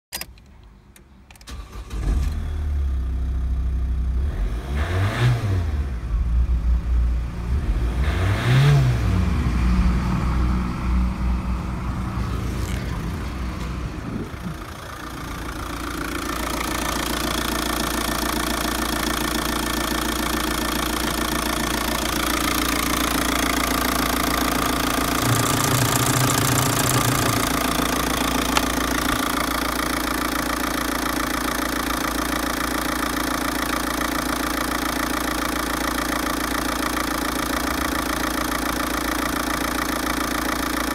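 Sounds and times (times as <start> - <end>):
diesel engine starting and revving: 1.4 - 40.9
diesel engine idling: 9.2 - 40.9.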